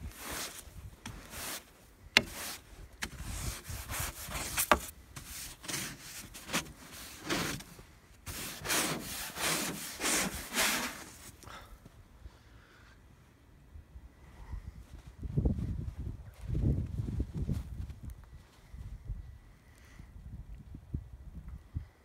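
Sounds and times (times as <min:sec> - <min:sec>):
brushing snow off a car: 0:00.0 - 0:11.4.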